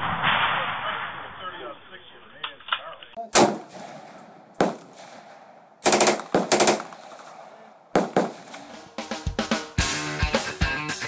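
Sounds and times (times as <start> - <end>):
rifle shots with echo: 0.0 - 1.5, 3.2 - 9.7.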